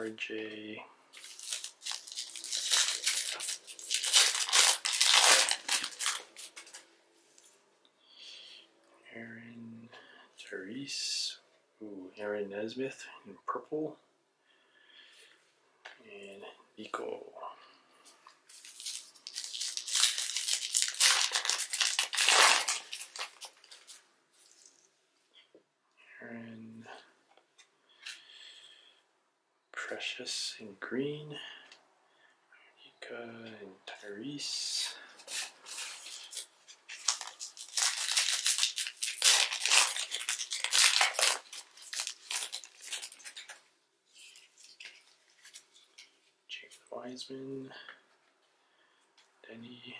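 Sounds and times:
foil wrapper crinkling and tearing: 1.2 - 6.8, 18.5 - 24.8, 34.8 - 46.1.

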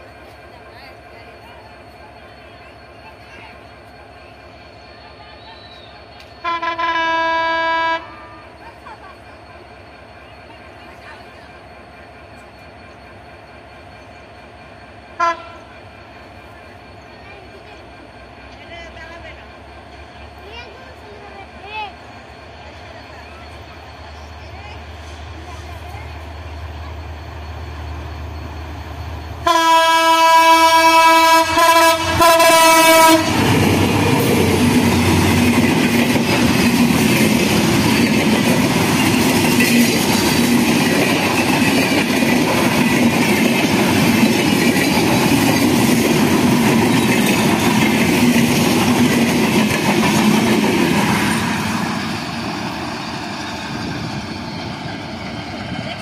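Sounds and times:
train wheels rumbling on rails: 0.0 - 56.0
locomotive air horn: 6.4 - 8.4, 15.2 - 15.6, 29.4 - 33.4.

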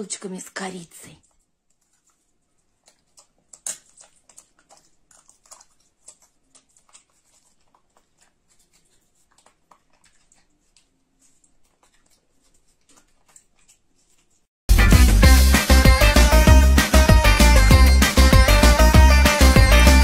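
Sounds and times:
chewing and lip-smacking: 1.2 - 14.5.

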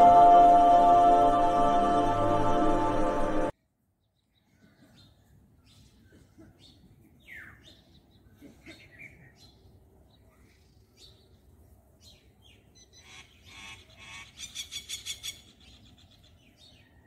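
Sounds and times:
music track: 0.0 - 3.5
faint background noise: 0.0 - 17.0.

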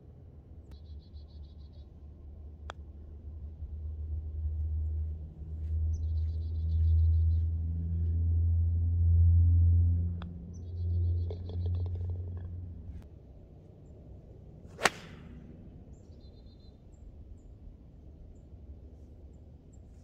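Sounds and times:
low rumble: 3.1 - 13.0
putter striking golf ball: 14.8 - 15.3.

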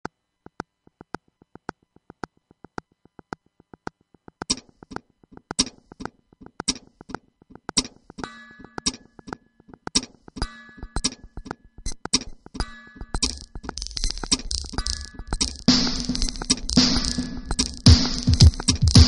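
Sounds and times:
ticking percussion: 7.4 - 19.0
heavy beat: 15.4 - 19.0.

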